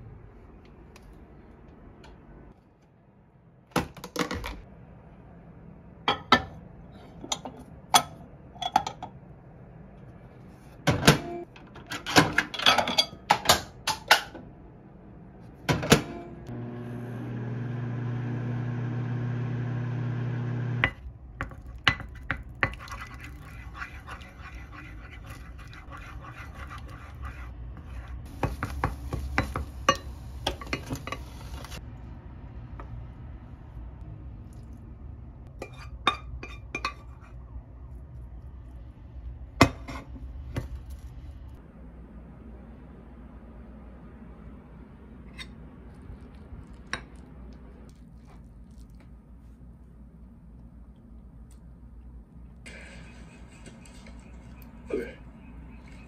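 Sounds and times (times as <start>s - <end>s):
dishes and utensils clinking: 11.1s - 14.3s
microwave oven humming: 15.8s - 20.9s.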